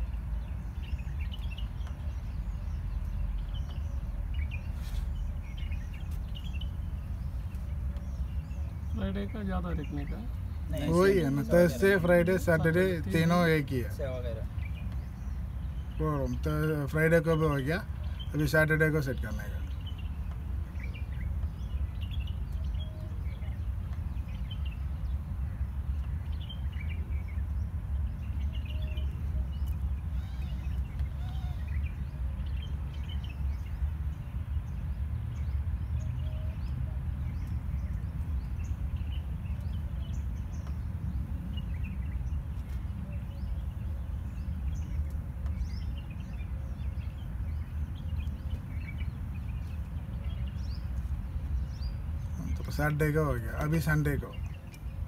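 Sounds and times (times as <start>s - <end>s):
bird chirps: 0.0s - 55.0s.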